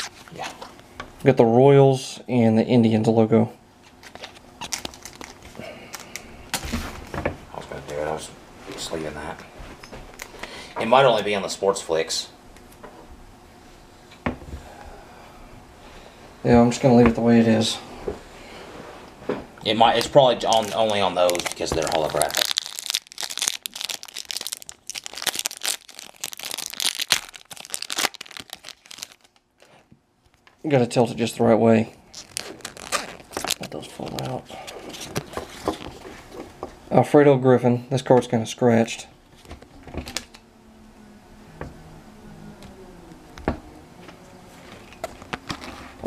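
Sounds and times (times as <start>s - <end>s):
faint low hum: 0.0s - 46.0s
paper wrapper crinkling and tearing: 4.0s - 6.7s, 19.8s - 29.8s, 32.0s - 36.1s.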